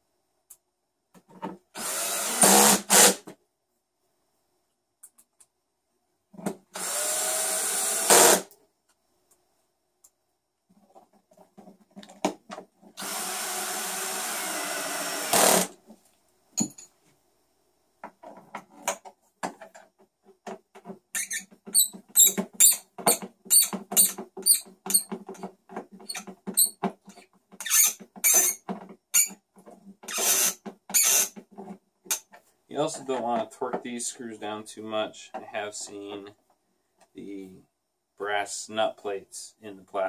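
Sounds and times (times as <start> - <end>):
cordless drill driving a screw: 1.8 - 3.2, 6.8 - 8.5, 13.0 - 15.7, 30.1 - 31.4.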